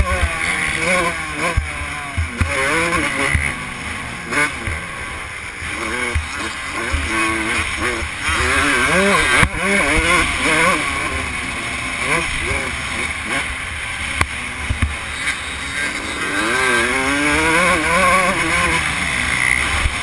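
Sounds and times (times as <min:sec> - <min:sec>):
dirt bike engine revving: 0:00.0 - 0:20.0.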